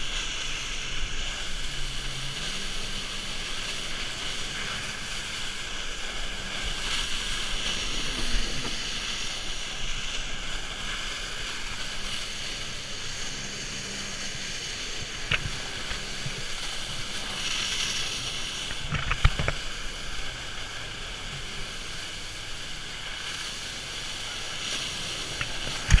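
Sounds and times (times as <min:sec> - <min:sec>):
wind on microphone: 0:00.0 - 0:20.4
rushing water: 0:00.0 - 0:26.0
steady motor noise: 0:00.0 - 0:26.0.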